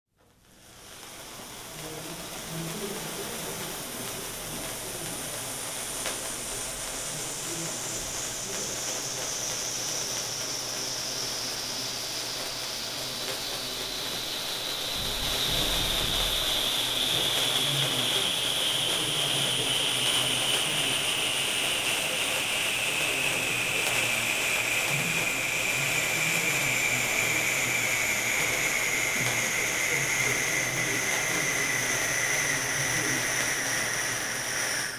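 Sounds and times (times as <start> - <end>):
firework fountain hissing: 0.1 - 34.9.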